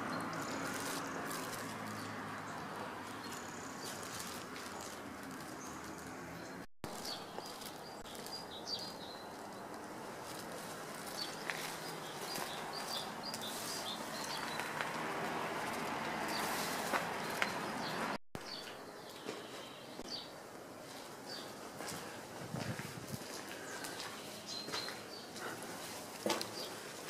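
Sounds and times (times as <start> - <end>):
small birds chirping: 0.0 - 15.0, 15.7 - 27.0.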